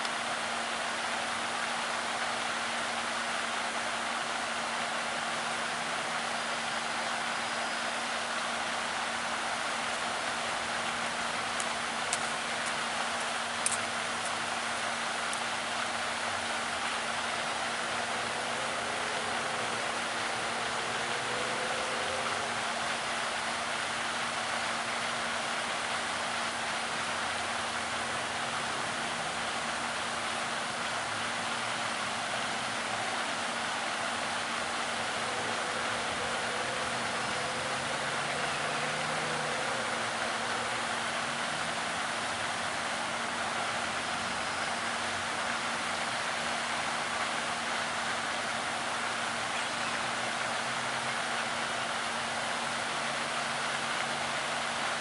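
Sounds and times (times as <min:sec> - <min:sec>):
faint low hum: 0:09.0 - 0:48.3.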